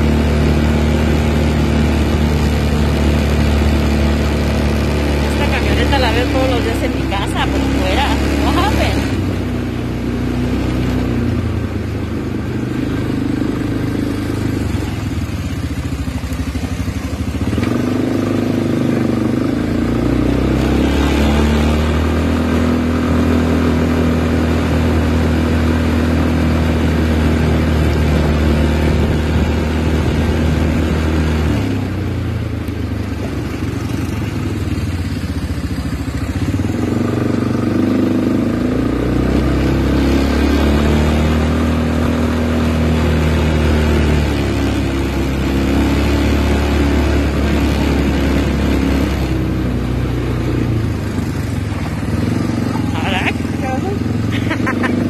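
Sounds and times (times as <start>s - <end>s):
small motorbike engine running: 0.0s - 55.0s.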